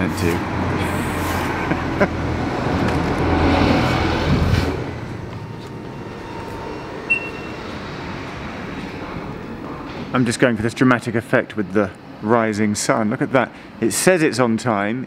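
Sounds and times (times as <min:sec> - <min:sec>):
road traffic rumbling: 0:00.0 - 0:13.8
card reader beep: 0:07.1 - 0:07.7.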